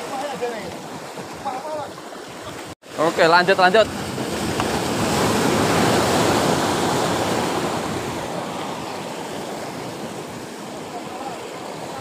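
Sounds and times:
sea surf against concrete blocks: 0:00.0 - 0:12.0.

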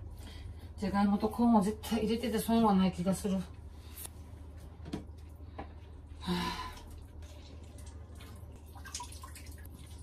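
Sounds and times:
water dripping: 0:06.6 - 0:10.0.

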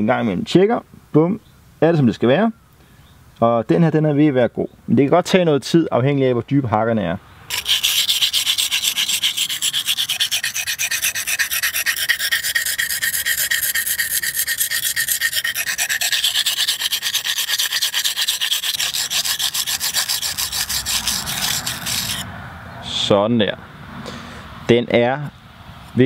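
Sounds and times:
knife rasping on whetstone: 0:07.5 - 0:22.2.

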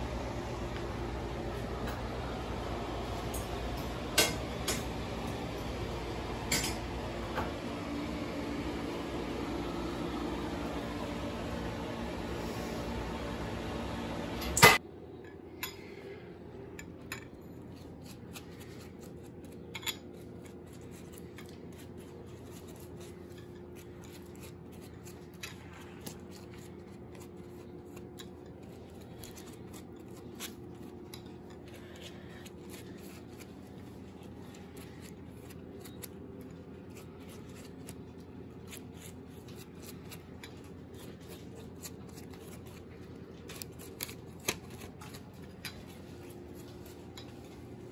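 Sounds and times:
steady hum: 0:00.0 - 0:47.9
pastry brush on dough: 0:17.5 - 0:47.9.

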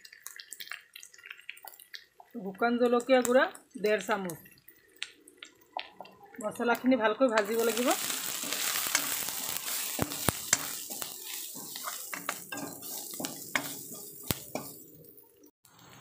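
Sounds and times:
onions sizzling in hot oil: 0:00.0 - 0:16.0
metal spatula scraping pan: 0:07.4 - 0:15.1.

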